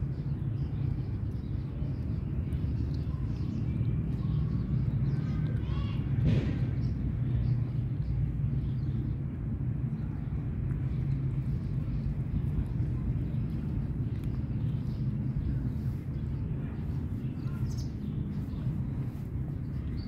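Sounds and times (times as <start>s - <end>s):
low outdoor rumble: 0.0s - 20.0s.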